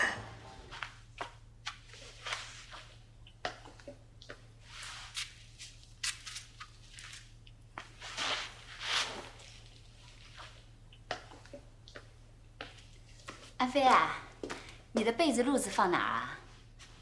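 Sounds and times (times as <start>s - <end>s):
faint low hum: 0.0s - 17.0s
footsteps on floor: 11.9s - 15.2s.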